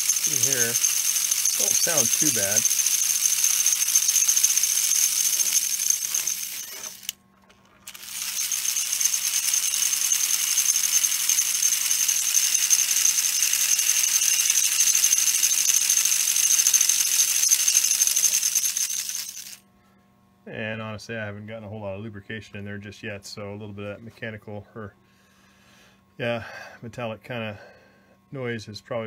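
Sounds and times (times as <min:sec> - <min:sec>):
toy train motor whirring: 0:00.0 - 0:19.6.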